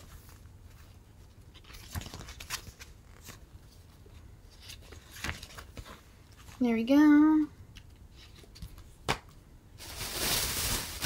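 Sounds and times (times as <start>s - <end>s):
paper crinkles: 0.0s - 6.6s.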